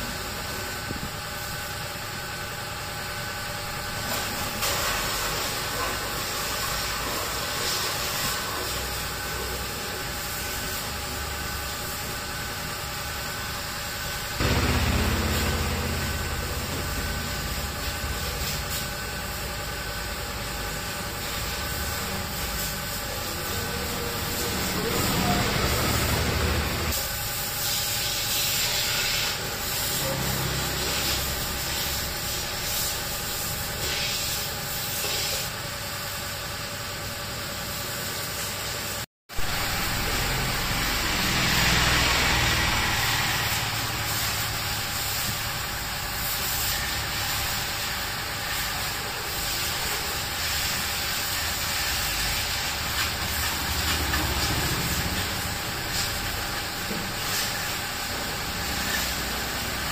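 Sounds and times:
pressure washer jet hissing: 0:04.0 - 0:35.4, 0:37.6 - 0:59.9
steady machine hum: 0:09.1 - 0:27.5, 0:50.2 - 0:59.9.

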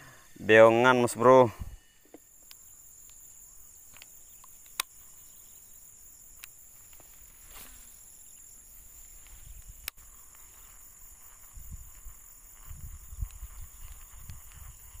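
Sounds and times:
insects droning: 0:00.0 - 0:15.0
faint ticks: 0:02.0 - 0:05.5, 0:06.1 - 0:07.6, 0:09.0 - 0:15.0
sharp click: 0:03.9 - 0:05.0.

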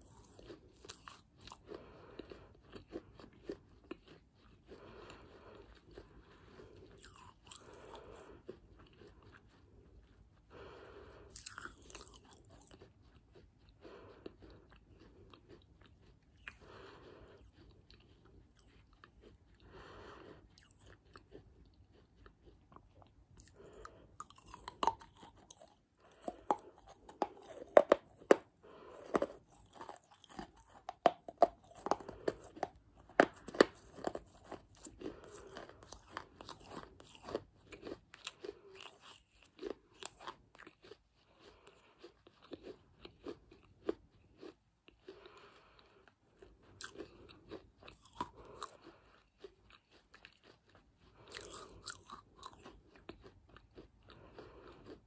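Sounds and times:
crunchy chewing: 0:00.0 - 0:55.0.

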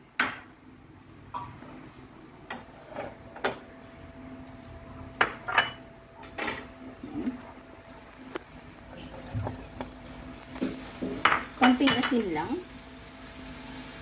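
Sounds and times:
utensils and dishes clinking: 0:05.2 - 0:06.8, 0:10.6 - 0:12.6.

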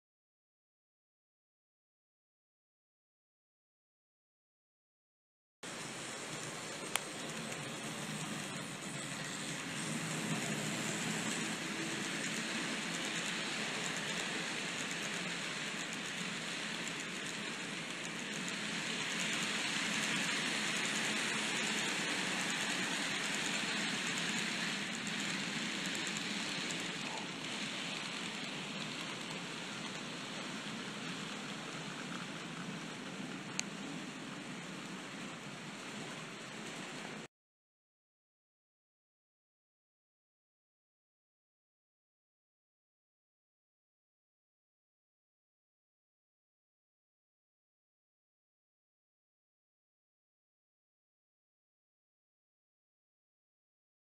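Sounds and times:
model train wheels rumbling on track: 0:05.7 - 0:37.3.

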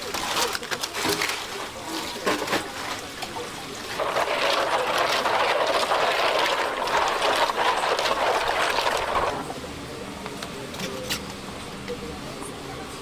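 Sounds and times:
water splashing in plastic basin: 0:03.9 - 0:09.5.

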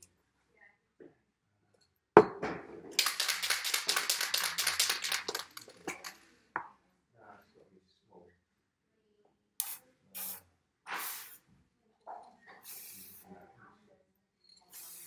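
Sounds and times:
spray can shaken with ball rattling: 0:03.0 - 0:06.2, 0:12.6 - 0:13.2, 0:14.7 - 0:15.0.

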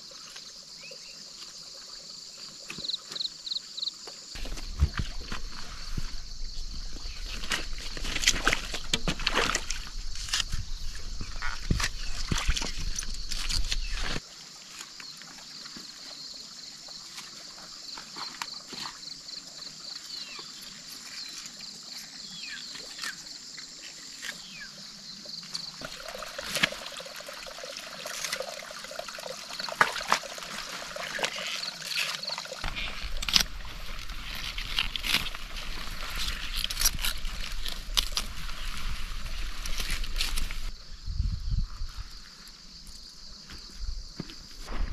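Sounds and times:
insects shrilling: 0:24.0 - 0:40.8.

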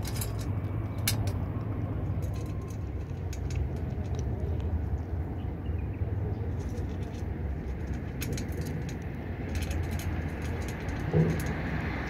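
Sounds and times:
steady low rumble: 0:00.0 - 0:12.0
cat crunching dry kibble: 0:01.4 - 0:04.8, 0:06.5 - 0:12.0.

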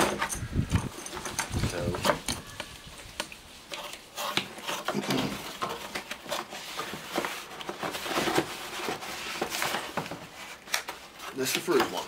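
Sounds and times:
metal tools clinking: 0:00.0 - 0:02.8
cardboard rustling and scraping: 0:00.0 - 0:12.0.

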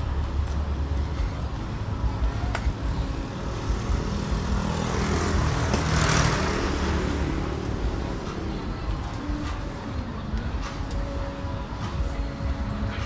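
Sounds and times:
street traffic rumble: 0:00.0 - 0:13.0
motorbike passing by: 0:03.1 - 0:09.0.

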